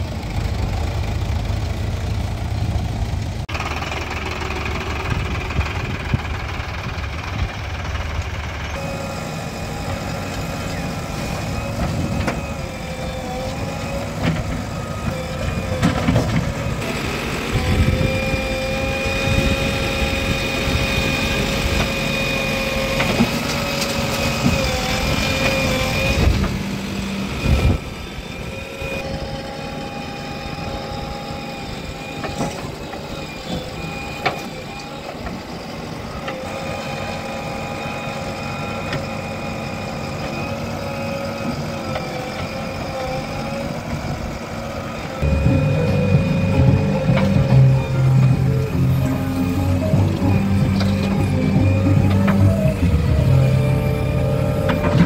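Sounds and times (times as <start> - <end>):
backhoe diesel engine under load: 0.0 - 55.0
steady whine: 0.0 - 55.0
tractor engine idling: 0.0 - 55.0.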